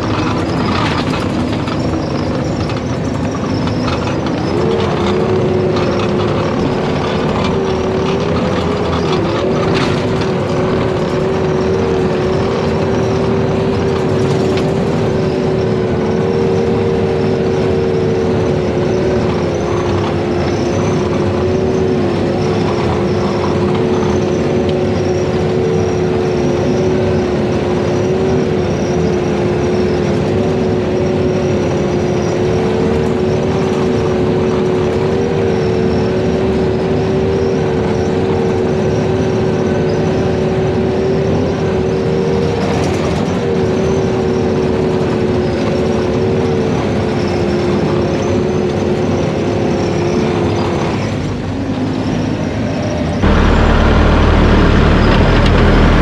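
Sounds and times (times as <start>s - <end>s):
skid steer engine running: 0.0s - 56.0s
loud deep rumble: 53.2s - 56.0s
two-note whine: 53.2s - 56.0s.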